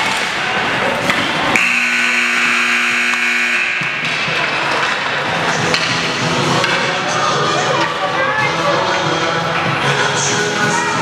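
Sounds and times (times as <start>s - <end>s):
steady pitched signal tone: 1.6s - 4.0s.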